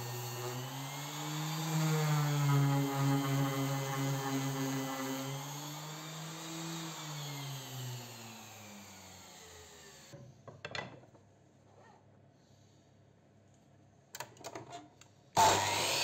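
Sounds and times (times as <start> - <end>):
orbital sander motor hum: 0.0 - 10.1, 15.4 - 16.0.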